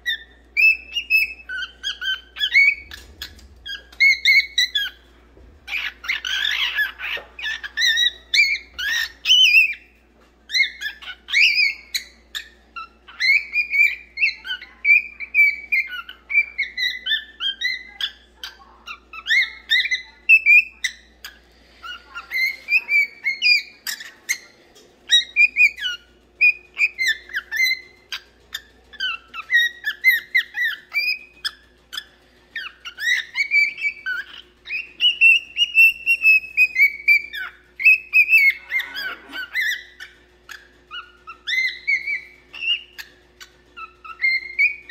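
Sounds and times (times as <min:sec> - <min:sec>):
cockatiel chirping and whistling: 0:00.0 - 0:21.1, 0:21.8 - 0:44.9.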